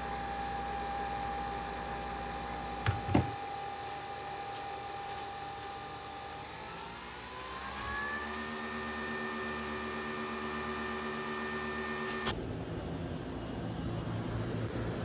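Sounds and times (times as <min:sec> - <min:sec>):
coffee machine motor whine: 0:00.0 - 0:12.4.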